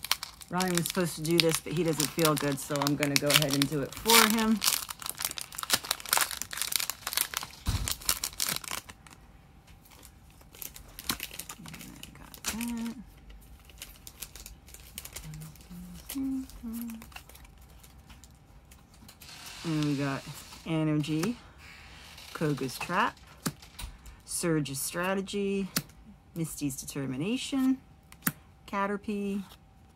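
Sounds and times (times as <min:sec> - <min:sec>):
cards rustling and clicking: 0:00.0 - 0:08.9
foil wrapper crinkling and tearing: 0:00.0 - 0:21.4
person humming: 0:11.6 - 0:13.0, 0:15.2 - 0:17.1.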